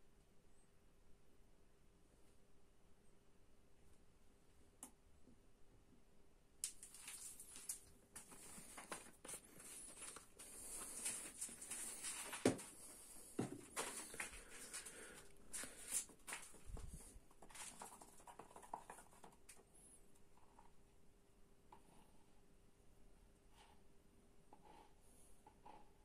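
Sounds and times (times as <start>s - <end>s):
plastic bottle and cup handled: 6.6s - 19.6s.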